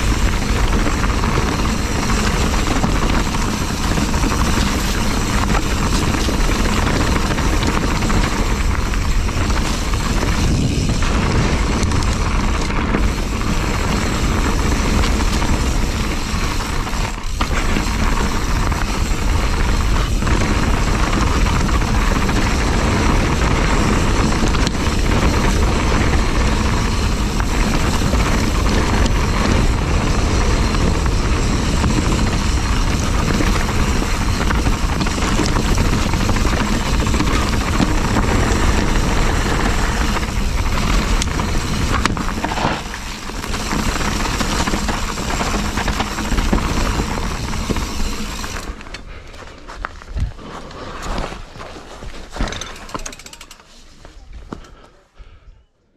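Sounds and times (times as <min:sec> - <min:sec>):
wind rumble on microphone: 0:00.0 - 0:48.8
bike tyre and frame rattle: 0:00.0 - 0:55.4.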